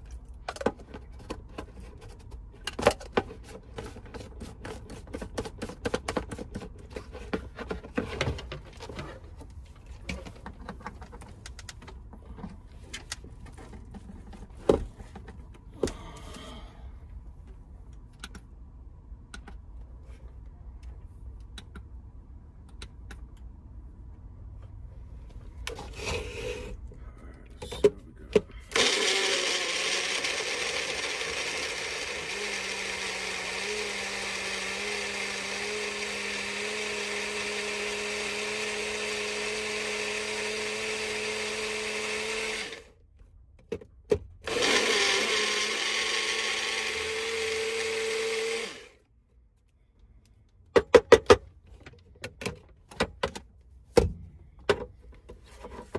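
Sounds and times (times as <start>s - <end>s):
blender motor running: 28.7s - 42.9s, 44.5s - 49.0s
blender clicks: 28.8s - 37.6s, 44.5s - 48.9s.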